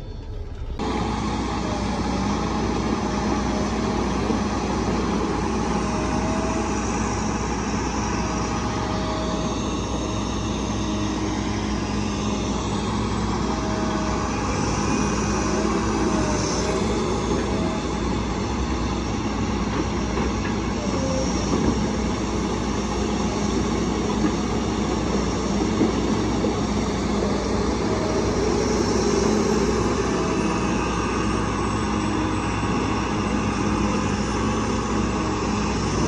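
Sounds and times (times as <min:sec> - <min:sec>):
faint wavering whine: 0:00.0 - 0:23.4
heavy diesel engines running: 0:00.0 - 0:36.0.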